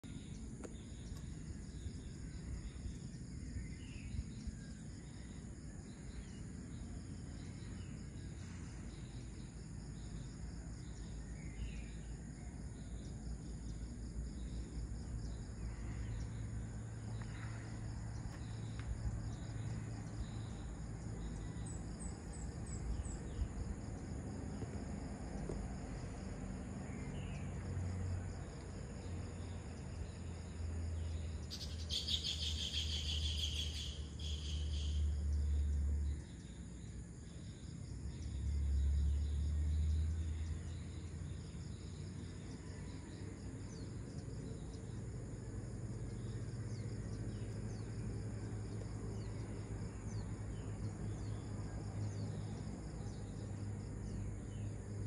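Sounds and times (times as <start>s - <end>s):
low steady rumble: 0.0s - 31.8s
crickets and insects droning: 0.0s - 55.0s
bird chirps: 31.0s - 35.1s.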